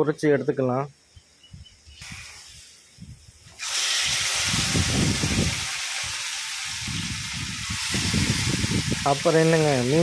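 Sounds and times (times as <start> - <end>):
fish sizzling in hot oil: 2.0 - 10.0
oil crackling: 3.5 - 10.0.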